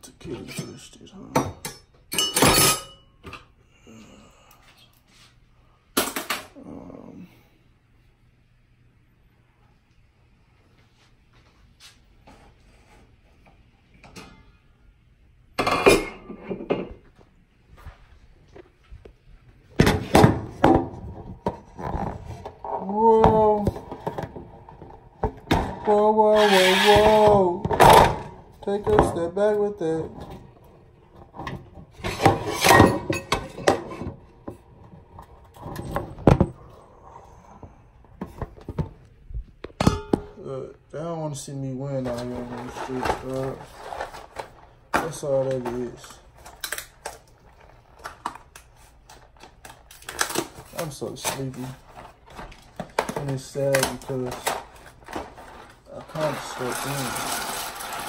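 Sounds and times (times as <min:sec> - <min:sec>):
dishes clinking: 0:00.5 - 0:03.4, 0:15.6 - 0:17.0, 0:32.1 - 0:34.2, 0:39.8 - 0:40.4
dishes clattering loudly: 0:01.4 - 0:03.4, 0:15.6 - 0:17.0, 0:31.4 - 0:34.2, 0:39.8 - 0:40.4
scraping and rustling: 0:42.0 - 0:46.6, 0:50.1 - 0:58.0.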